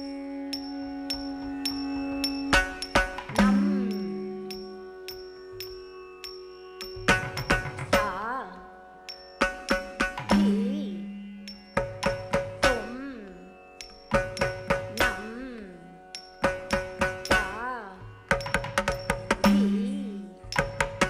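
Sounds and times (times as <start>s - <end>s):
held low note: 0.0s - 8.6s
plucked veena notes: 0.0s - 21.0s.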